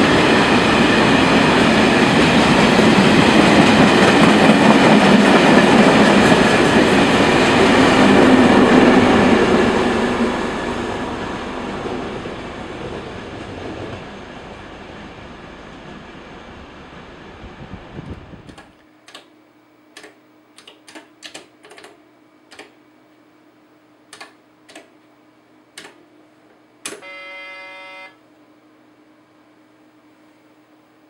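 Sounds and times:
train rumble: 0.0 - 18.6
steady electrical hum: 18.0 - 31.0
terminal beep: 27.0 - 28.2.

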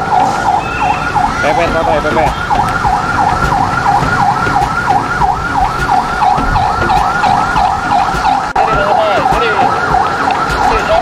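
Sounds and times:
siren yelping: 0.0 - 11.0
truck engines rumbling: 0.0 - 11.0.

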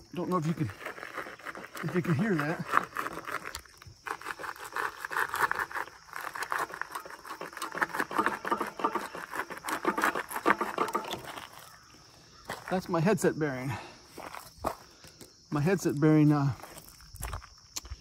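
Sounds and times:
bike bearing clicking and crackling: 4.8 - 11.8.

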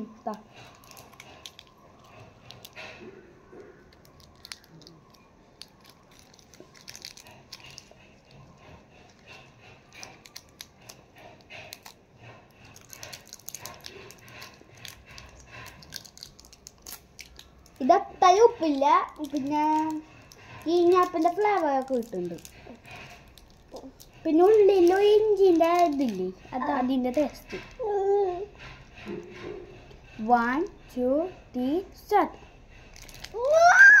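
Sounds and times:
candy wrapper crinkling: 0.0 - 28.1, 32.9 - 34.0.

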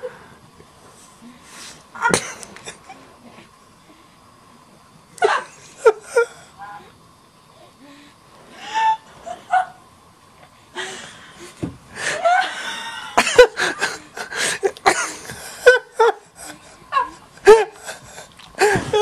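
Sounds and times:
person laughing: 12.0 - 19.0.

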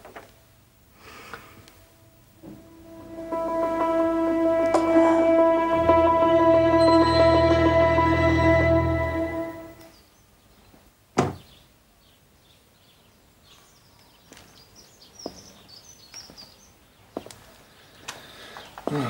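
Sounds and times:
faint birdsong: 9.8 - 19.0.

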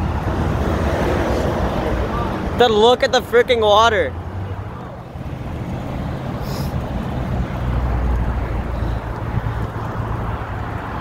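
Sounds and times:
wind rushing over microphone: 5.0 - 11.0.

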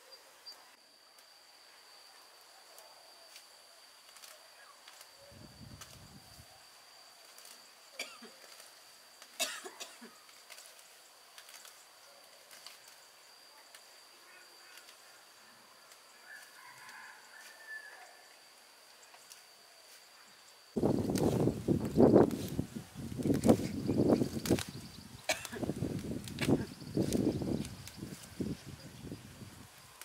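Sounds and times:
faint chirps: 0.0 - 20.8
high insect drone: 0.0 - 30.0.

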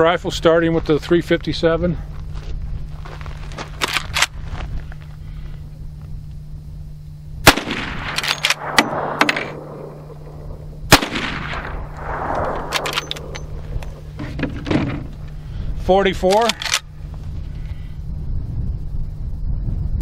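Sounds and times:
rifle shots with rolling echo: 7.4 - 15.1
rifle lever clicks: 16.2 - 16.9.

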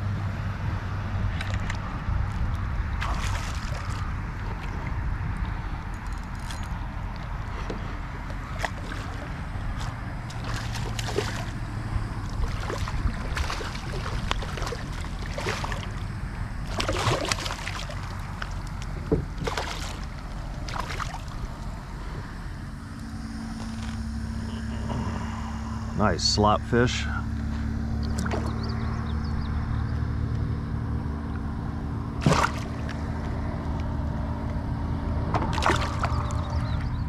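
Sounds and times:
water and wind against hull: 0.0 - 26.1, 26.7 - 30.4, 31.2 - 34.1, 35.2 - 37.0
fish splashing at water surface: 3.0 - 4.7, 8.6 - 11.6, 12.2 - 18.7, 19.4 - 21.4, 32.2 - 33.0, 35.4 - 36.4.

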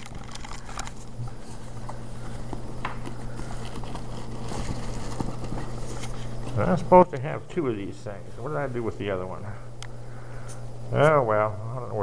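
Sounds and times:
rummaging through bag: 0.0 - 6.6.

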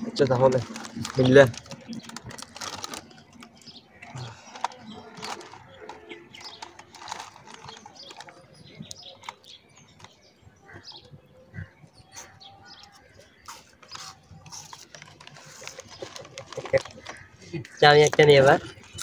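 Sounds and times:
birds chirping faintly: 0.0 - 19.0
chip packet crinkling: 0.1 - 9.4, 13.5 - 17.3
potato chip crunching: 0.2 - 8.5.

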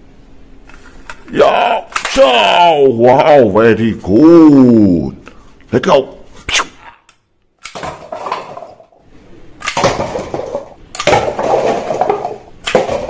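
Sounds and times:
plastic toy guns clattering: 7.6 - 8.9, 9.6 - 13.0.

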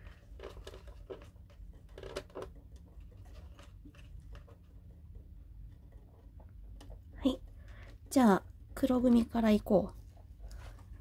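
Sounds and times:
soft rustling: 9.8 - 11.0.

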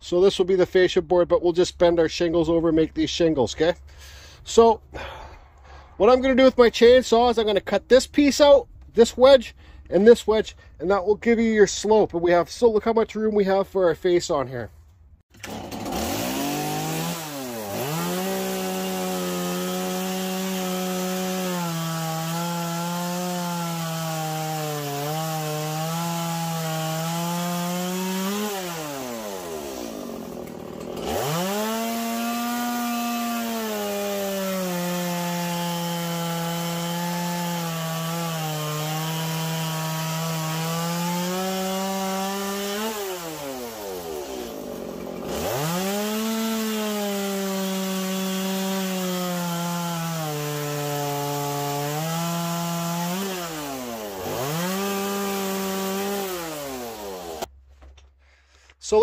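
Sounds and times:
chainsaw cutting wood: 15.3 - 57.5.

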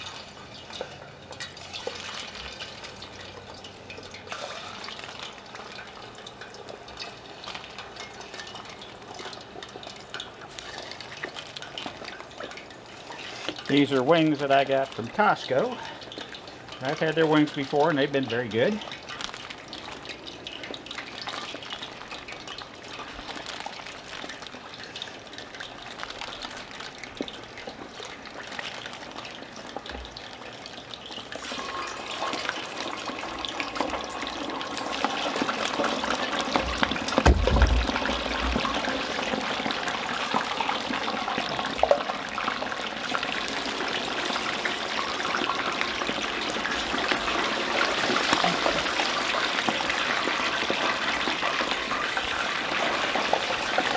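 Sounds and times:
wings deep-frying in oil: 0.0 - 53.9
low thump: 37.2 - 38.6.

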